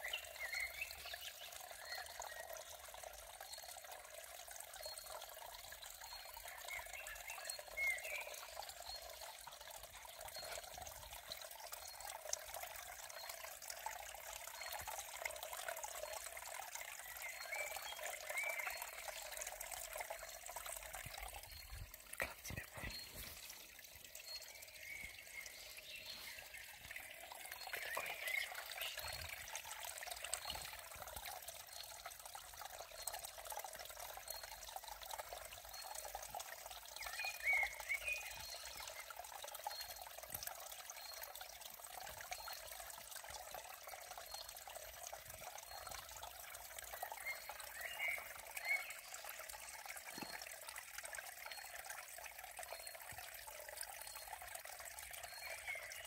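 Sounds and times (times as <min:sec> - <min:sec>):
water trickling: 0:00.0 - 0:56.0.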